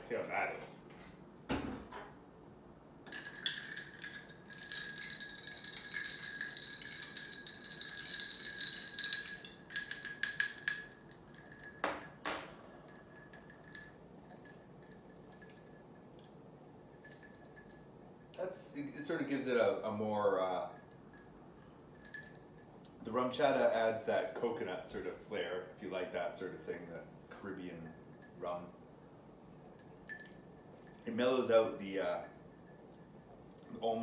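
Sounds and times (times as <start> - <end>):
ice cubes clinking in glass: 3.1 - 15.8
glass ringing: 3.1 - 16.2, 16.8 - 18.4, 20.3 - 22.8, 29.6 - 33.4.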